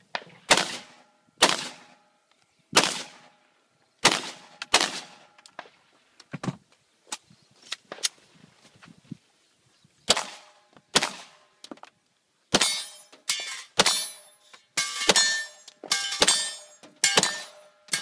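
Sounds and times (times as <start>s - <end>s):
pistol shots: 0.1s - 2.0s, 2.8s - 3.3s, 4.0s - 5.7s, 10.1s - 11.4s, 14.9s - 18.0s
steel target ringing: 12.6s - 18.0s.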